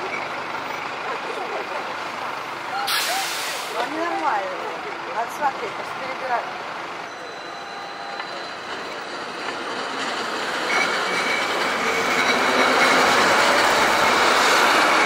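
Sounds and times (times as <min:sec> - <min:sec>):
tram passing: 0:03.4 - 0:15.0.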